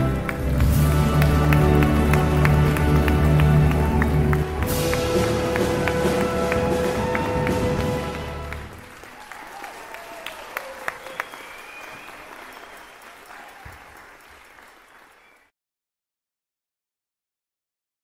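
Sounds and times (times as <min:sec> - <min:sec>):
audience applauding: 0:00.0 - 0:15.5.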